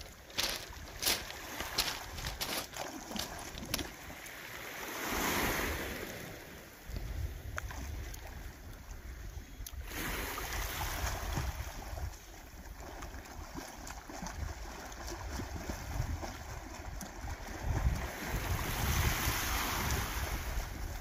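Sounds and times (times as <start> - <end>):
wind buffeting microphone: 0.0 - 2.7, 6.9 - 12.3, 14.2 - 21.0
water washing on pebble shore: 0.0 - 6.4, 12.7 - 20.7
faint splashes: 9.7 - 18.6.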